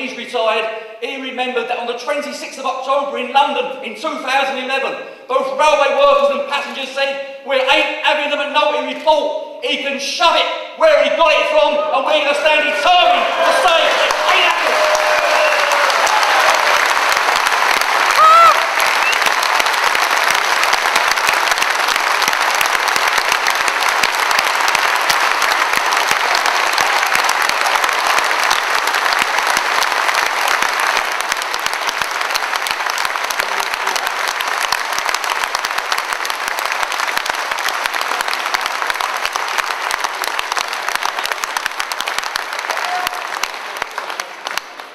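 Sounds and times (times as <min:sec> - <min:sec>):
audience applauding: 0:12.5 - 0:44.9.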